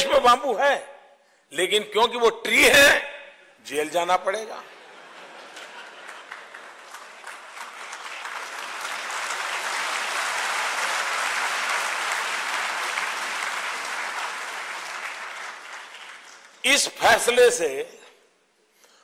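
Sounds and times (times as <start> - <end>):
audience applauding: 5.0 - 16.6.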